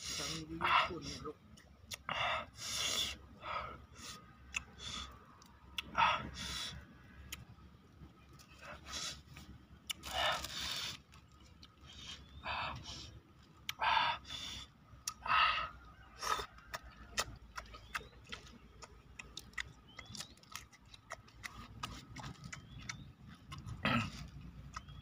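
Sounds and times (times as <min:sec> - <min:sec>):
wet chewing clicks: 0:04.3 - 0:06.0, 0:07.0 - 0:13.9, 0:14.9 - 0:25.0
crunchy bites: 0:09.7 - 0:12.2, 0:16.2 - 0:25.0.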